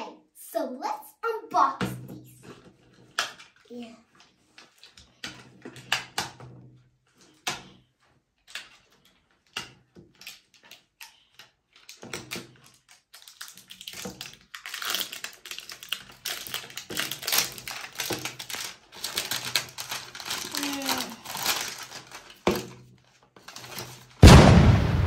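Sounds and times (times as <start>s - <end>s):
plastic wrapper crinkling: 11.7s - 24.2s.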